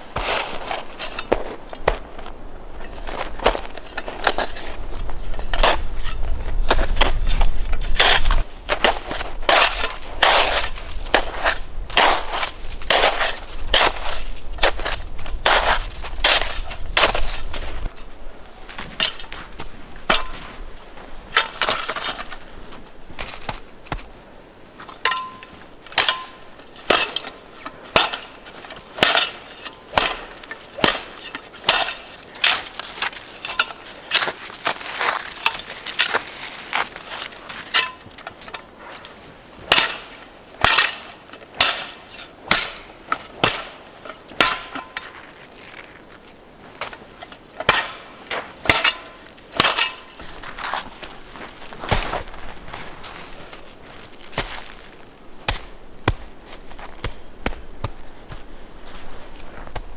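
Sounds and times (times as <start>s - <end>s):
shovel scraping packed snow: 0.1s - 2.3s, 5.5s - 18.0s, 27.9s - 38.0s, 47.6s - 55.8s.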